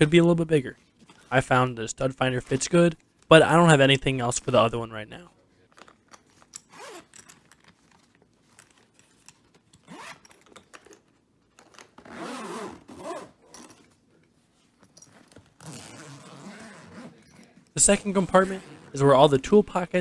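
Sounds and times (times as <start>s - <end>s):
zipper being pulled: 6.6s - 7.4s, 9.8s - 10.4s, 11.7s - 13.8s, 15.3s - 17.3s, 18.4s - 19.0s.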